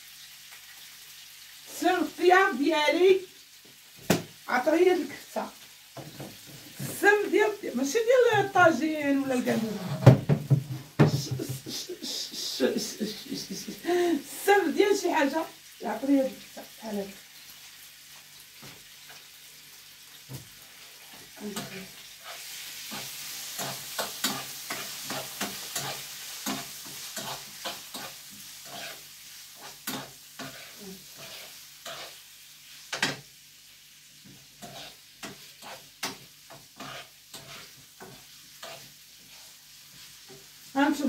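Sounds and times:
meat sizzling in a frying pan: 0.0s - 41.0s
utensil scraping a pan: 21.4s - 32.2s, 34.6s - 40.4s.

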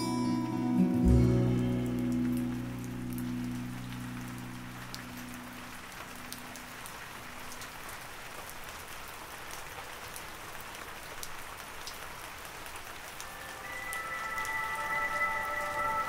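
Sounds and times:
held music notes: 0.0s - 5.6s, 13.1s - 16.0s
steady rain: 0.0s - 16.0s
raindrop ticks: 1.1s - 14.5s.

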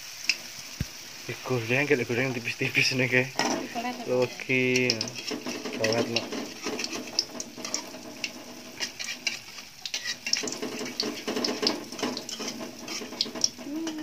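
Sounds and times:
batter sizzling in oil: 0.0s - 14.0s
metal spatula tapping a wok: 4.7s - 14.0s.

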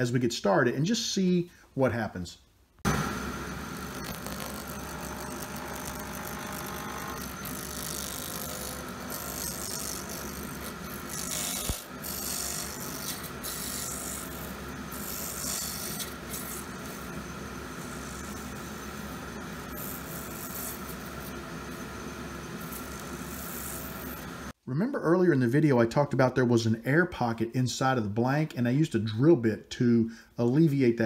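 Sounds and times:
lathe motor hum: 2.9s - 24.5s
turning tool scraping hiss: 3.8s - 24.5s.

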